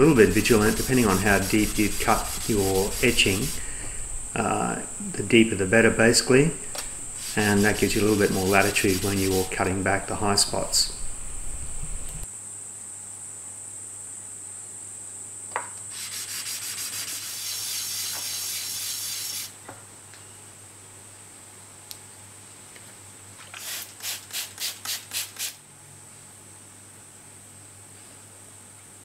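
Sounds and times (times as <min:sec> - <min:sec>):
gritty scrubbing on abrasive paper: 0:00.0 - 0:03.7, 0:07.2 - 0:09.8, 0:15.9 - 0:19.5
short quick rubbing strokes: 0:00.1 - 0:03.8, 0:06.8 - 0:09.7, 0:16.0 - 0:19.5, 0:23.6 - 0:25.6.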